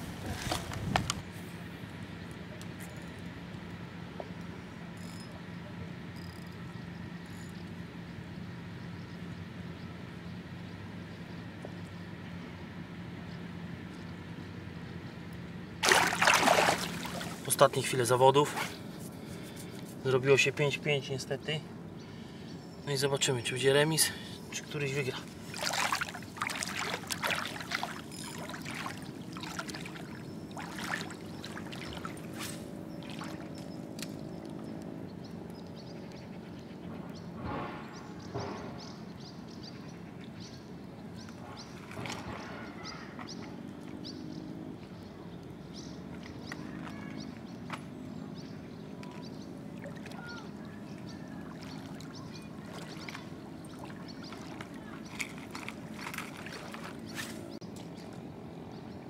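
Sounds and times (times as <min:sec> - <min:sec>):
water sloshing around wading legs: 0:00.0 - 0:01.4, 0:15.8 - 0:20.2, 0:24.5 - 0:36.1, 0:41.2 - 0:58.4
faint low droning hum: 0:00.0 - 0:38.4, 0:44.1 - 0:59.0.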